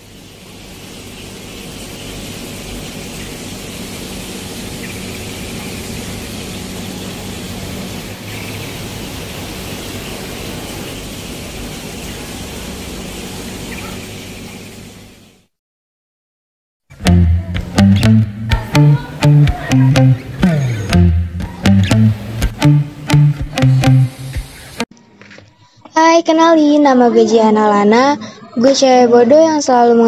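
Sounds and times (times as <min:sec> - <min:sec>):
steady rushing hiss: 0:22.2 - 0:24.8.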